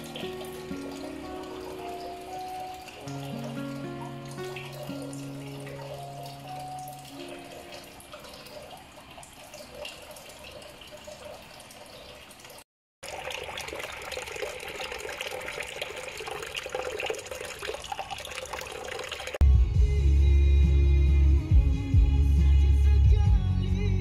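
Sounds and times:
fountain water splashing: 0:00.0 - 0:19.4.

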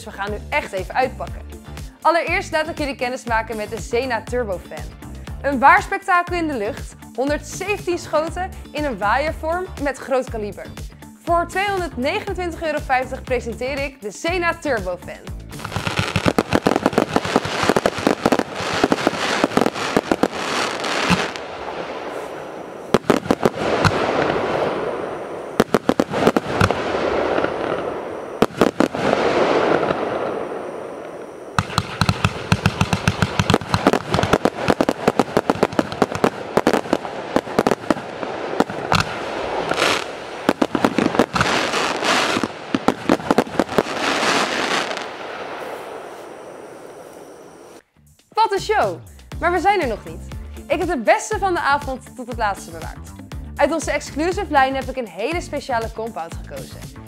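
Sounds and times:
fireworks cake firing shots: 0:15.6 - 0:21.5, 0:22.9 - 0:25.0, 0:25.6 - 0:30.5, 0:31.6 - 0:45.8.

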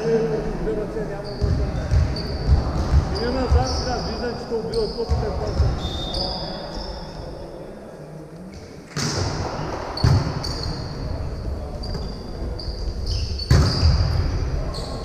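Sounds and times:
voices in hall: 0:00.0 - 0:15.0
sneakers squeaking on court: 0:01.2 - 0:07.0, 0:09.0 - 0:15.0.

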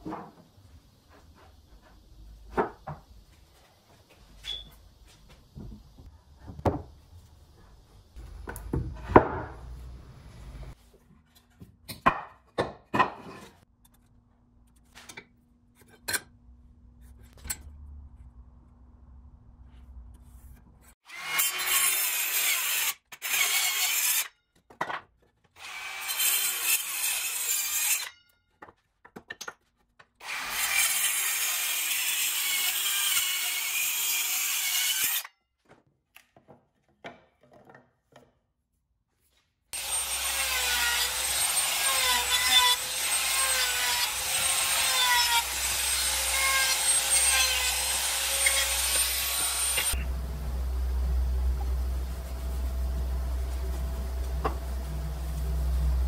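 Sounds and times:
circular saw cutting wood: 0:25.6 - 0:28.1, 0:30.2 - 0:35.3, 0:39.8 - 0:56.0.

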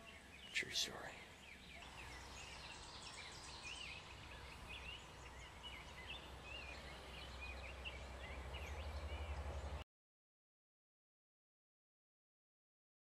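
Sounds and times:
songbirds chirping and singing: 0:00.0 - 0:09.8.

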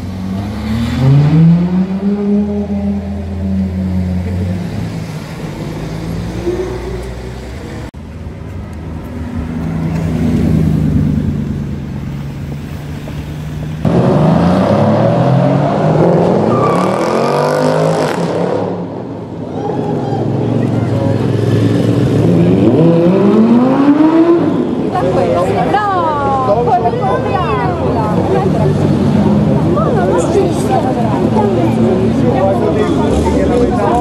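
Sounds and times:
car engines revving: 0:00.0 - 0:34.0.

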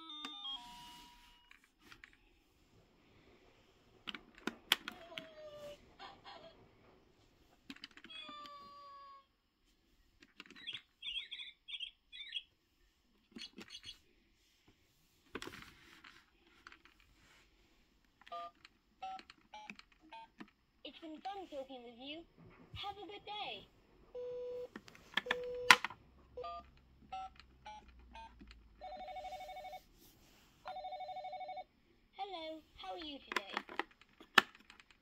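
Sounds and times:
keypad beeps: 0:18.3 - 0:20.4, 0:24.2 - 0:29.8
plastic buttons clicking: 0:24.7 - 0:26.0, 0:33.0 - 0:35.0.

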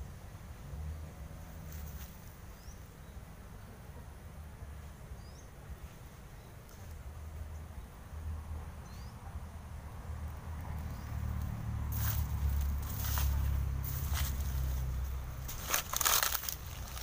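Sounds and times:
low rumble: 0:10.1 - 0:17.0.

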